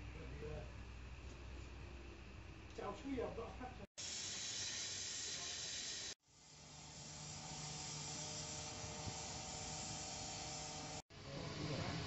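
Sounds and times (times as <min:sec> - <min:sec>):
steam hissing: 0:04.0 - 0:12.0.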